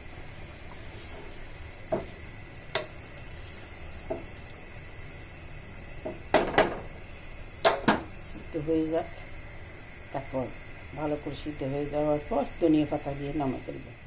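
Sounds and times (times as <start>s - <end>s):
spatula stirring in metal pot: 0.2s - 4.7s.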